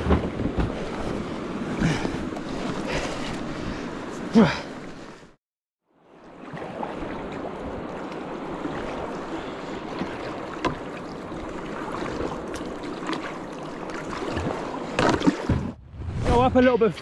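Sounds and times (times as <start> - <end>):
river water washing around kayak: 6.0 - 15.8.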